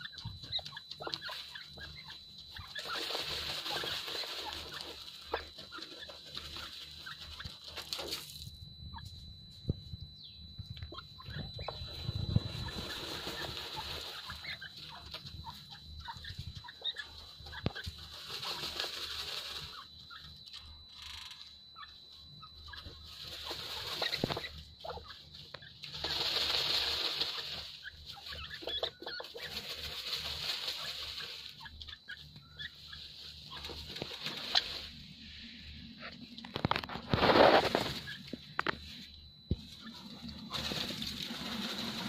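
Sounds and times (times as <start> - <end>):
birds scuffling in dust: 0.0 - 9.2, 10.2 - 42.0.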